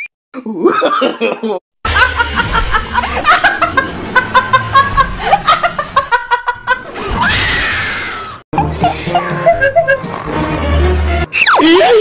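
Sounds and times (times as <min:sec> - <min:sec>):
woman laughing loudly: 0:00.7 - 0:07.1, 0:08.6 - 0:10.1.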